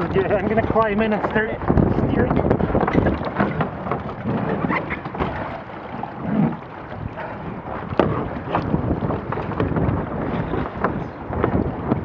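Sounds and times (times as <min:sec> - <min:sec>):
water splashing around boat hull: 0:00.0 - 0:12.0
wind buffeting microphone: 0:00.0 - 0:12.0
sharp knock on boat: 0:07.2 - 0:10.0.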